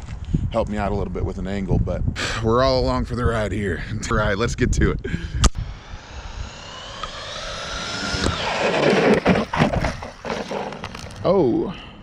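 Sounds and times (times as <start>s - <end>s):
rc truck motor whine: 5.4s - 11.2s
tyre noise rush: 6.5s - 11.3s.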